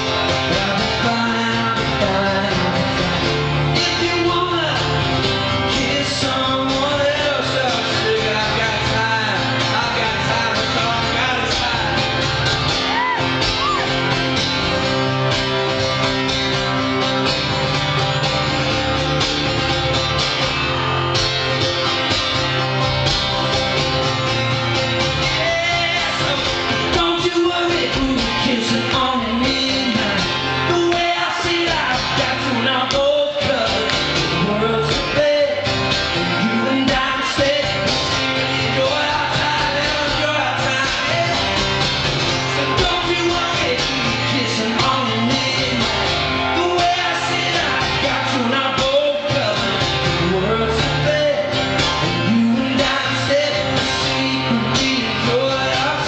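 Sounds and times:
man singing into a microphone: 0.0s - 13.8s, 25.2s - 56.0s
acoustic guitar strumming: 0.0s - 56.0s.

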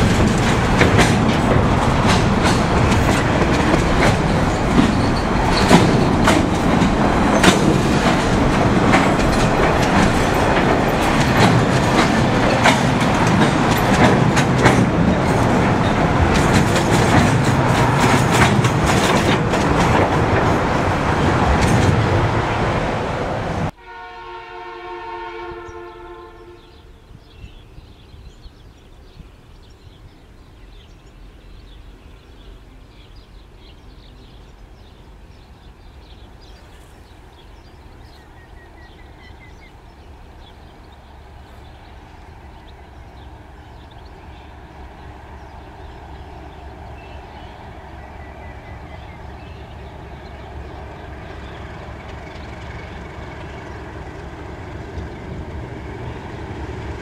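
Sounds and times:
train wheels clattering over rail joints: 0.0s - 22.5s
low rumble of train: 0.0s - 57.0s
distant train horn chord: 23.7s - 27.6s.

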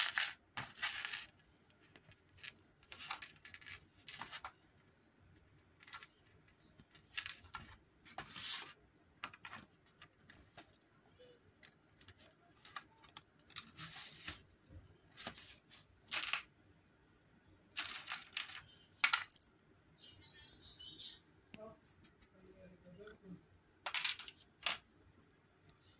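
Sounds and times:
plastic chain clinking and rattling: 0.0s - 4.4s, 17.8s - 19.5s.

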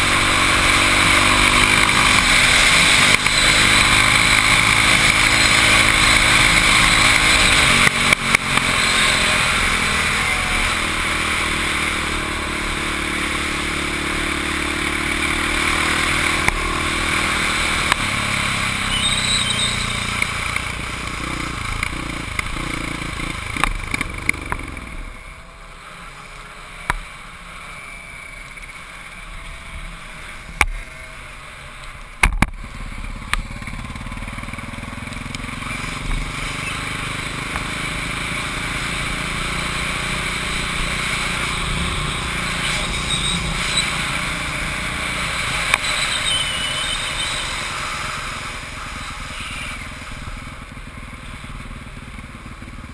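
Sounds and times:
motorcycle engine running: 0.0s - 52.9s
sharp clicks and knocks: 32.2s - 32.6s.

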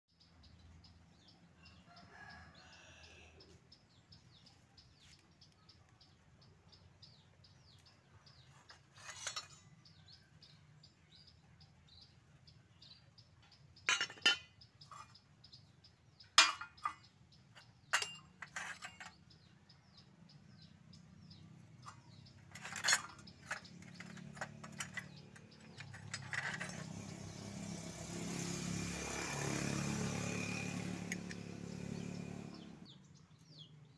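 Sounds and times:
birds chirping: 0.1s - 33.9s
rooster crowing: 1.7s - 3.4s
engine: 7.1s - 33.9s
scrap metal clanking: 8.7s - 10.0s, 13.9s - 15.2s, 16.4s - 19.4s, 21.3s - 27.7s.

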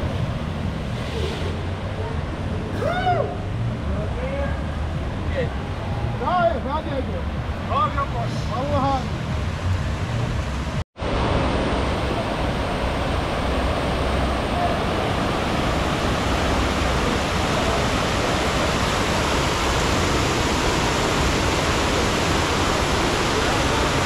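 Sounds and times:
rushing water: 0.0s - 24.0s.

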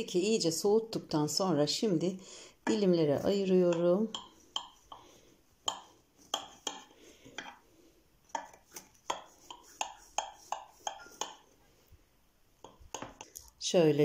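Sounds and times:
knife tapping against glass dish: 3.7s - 5.0s, 5.6s - 7.6s, 8.4s - 11.4s.

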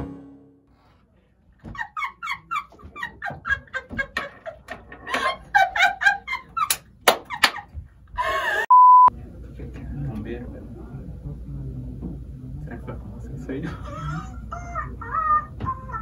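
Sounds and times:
woman and man laughing: 1.6s - 8.7s, 13.7s - 16.0s.

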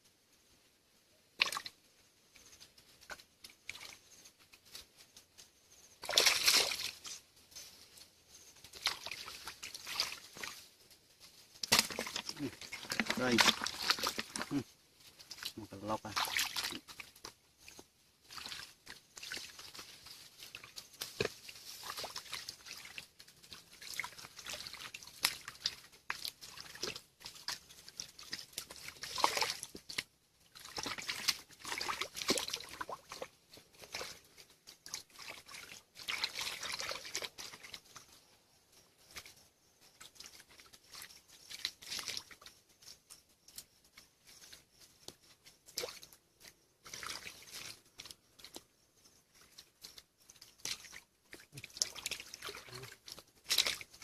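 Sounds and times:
hands splashing in muddy water: 1.4s - 1.8s, 6.0s - 7.2s, 8.6s - 10.6s, 11.6s - 14.7s, 15.3s - 38.1s, 40.0s - 42.5s, 46.8s - 48.6s, 50.5s - 54.0s.

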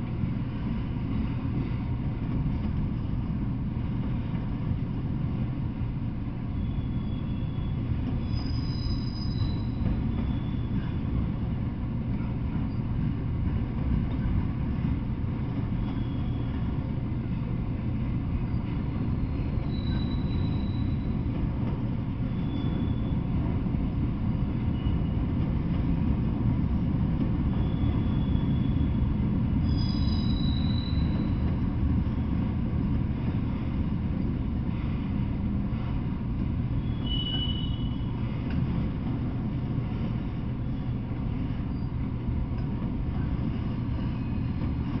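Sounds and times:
freight train rumbling past: 0.0s - 45.0s
high-pitched wheel squeals: 6.5s - 11.1s, 15.8s - 16.7s, 19.2s - 21.2s, 22.3s - 23.2s, 27.5s - 29.0s, 29.6s - 31.5s, 36.8s - 38.1s.

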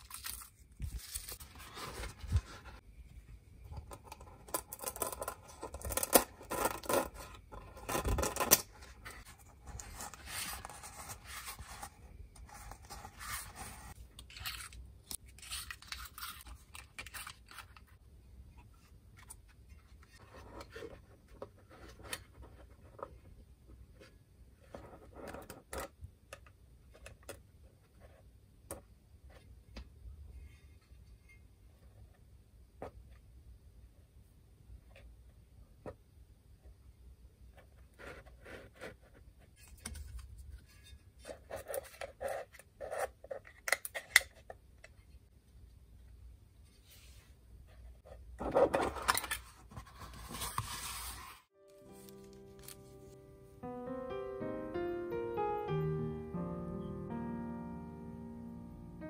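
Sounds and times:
speaker being handled scrapes: 48.4s - 51.5s.

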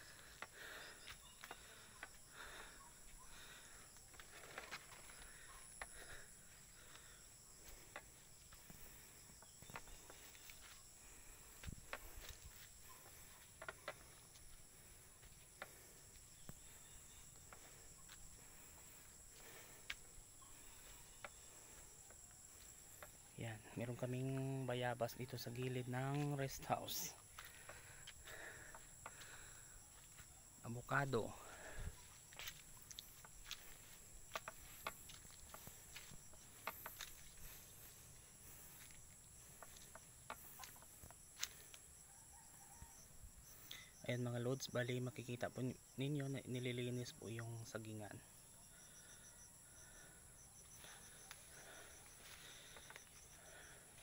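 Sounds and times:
footsteps on dirt path: 0.0s - 42.0s, 50.6s - 54.0s
insects chirring: 0.0s - 54.0s
footsteps on dry leaves: 31.5s - 39.0s.

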